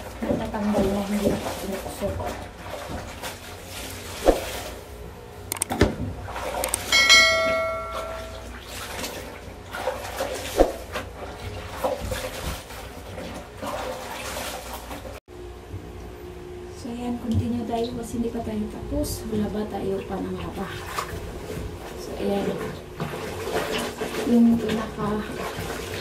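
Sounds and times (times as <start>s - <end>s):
water splashing: 0.0s - 4.9s, 5.6s - 15.2s, 20.4s - 26.0s
clothes scrubbed in water: 0.0s - 5.0s, 8.0s - 15.2s, 19.4s - 26.0s
bell chime sound effect: 6.9s - 8.5s.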